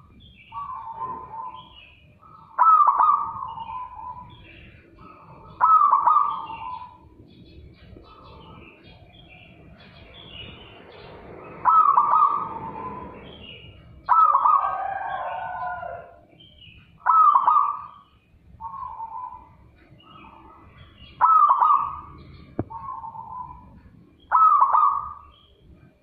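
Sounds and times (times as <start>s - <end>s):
faint high chirping: 0.0s - 26.0s
dove rolling coos: 2.3s - 4.3s, 5.1s - 7.0s, 11.5s - 13.2s, 14.1s - 16.2s, 21.2s - 22.1s, 24.3s - 25.2s.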